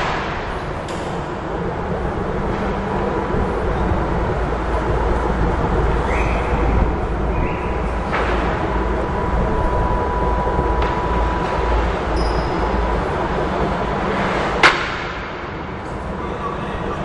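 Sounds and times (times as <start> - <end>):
heavy machinery rumble: 0.0 - 17.0
thin steady whine: 0.0 - 17.0
sharp knock: 14.6 - 15.4.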